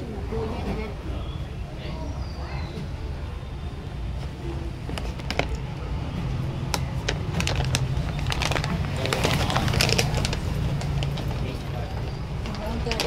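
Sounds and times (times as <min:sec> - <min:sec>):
plastic bags rustling and crinkling: 0:04.8 - 0:05.7, 0:06.7 - 0:13.0.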